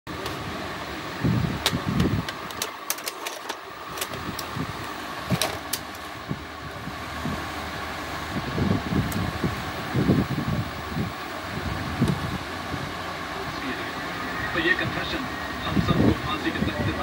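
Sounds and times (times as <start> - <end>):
steady mechanical hum: 0.1 - 17.0
sharp plastic clicks: 1.6 - 4.5.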